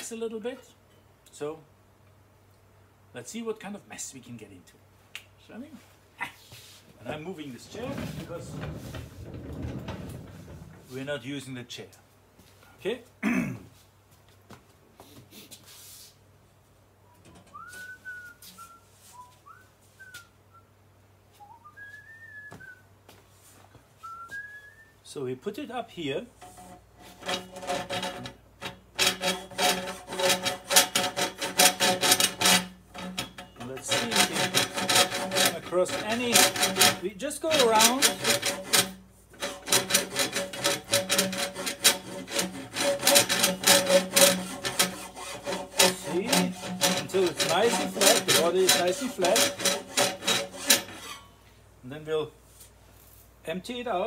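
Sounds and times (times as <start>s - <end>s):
rasp scraping inside metal pipe: 7.0s - 11.0s, 26.4s - 51.4s
man whistling a tune: 17.5s - 20.7s, 21.4s - 22.9s, 24.0s - 25.0s.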